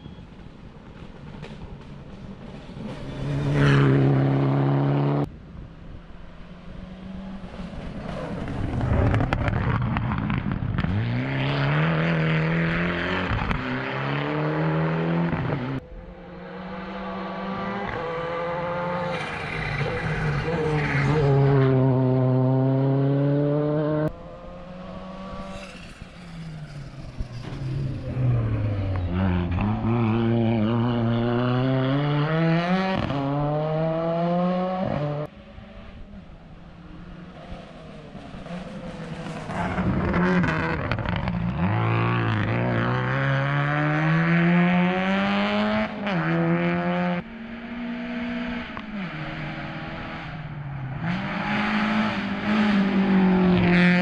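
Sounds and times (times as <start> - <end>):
rally car engines revving: 6.6 - 54.0.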